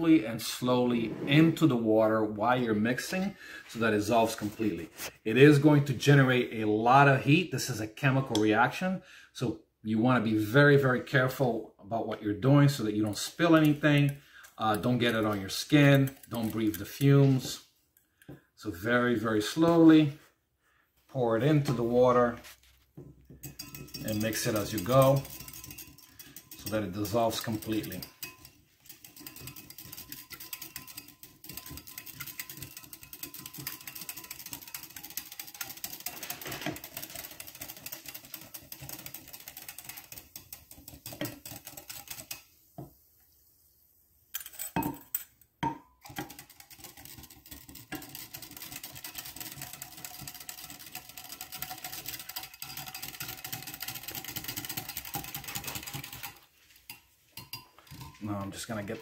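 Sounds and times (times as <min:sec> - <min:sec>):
whisk rattling in glass cup: 0:12.7 - 0:17.5, 0:23.3 - 0:42.6, 0:46.0 - 0:59.0.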